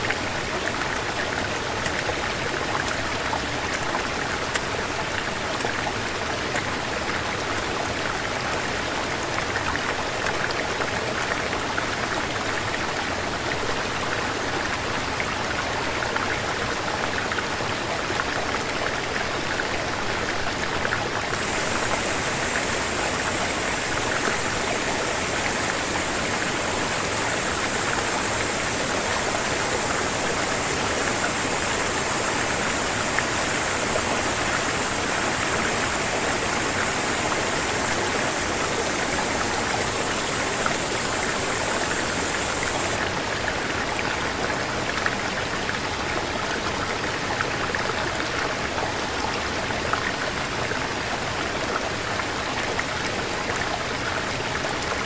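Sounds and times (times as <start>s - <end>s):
stream rushing over rocks: 0.0s - 55.0s
higher hiss: 21.3s - 43.1s.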